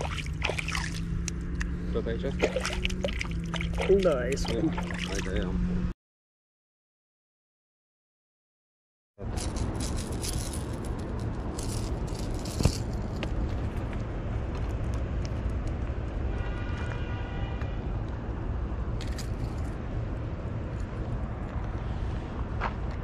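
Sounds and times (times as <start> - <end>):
fishing reel rattling and clicking: 9.4 - 13.0.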